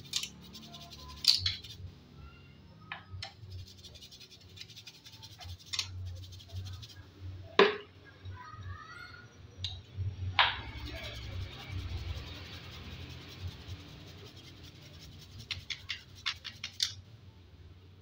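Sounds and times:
chain links clicking: 0.0 - 0.5
brush scrubbing a chain: 0.0 - 1.8, 3.3 - 7.1, 10.6 - 17.0.

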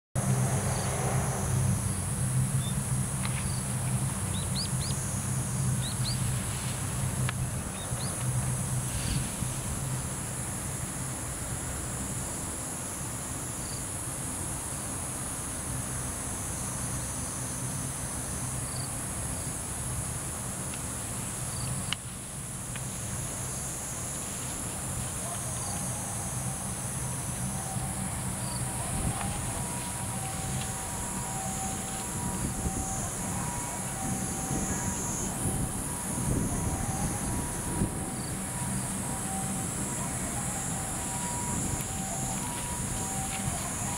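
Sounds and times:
insects chorus: 0.2 - 43.9
low steady hum: 14.9 - 43.9.

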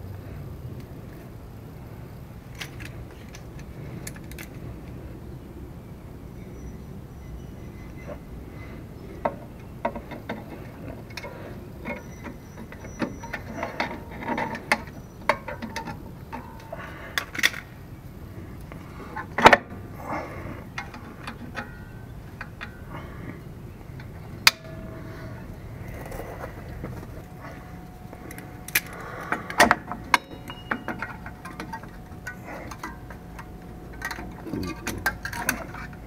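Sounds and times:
hand tool clicking and scraping metal: 9.2 - 17.7, 18.6 - 23.1, 23.9 - 36.0
metal clank: 20.7 - 22.9, 24.0 - 36.0.

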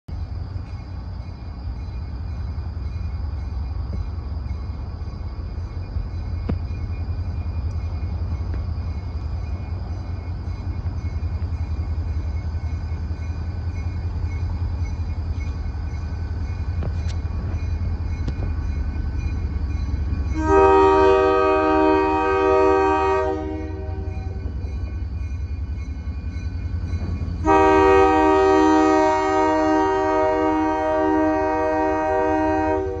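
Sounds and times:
train rumbling: 0.1 - 33.0
locomotive horn blast: 20.3 - 24.4, 27.4 - 33.0.

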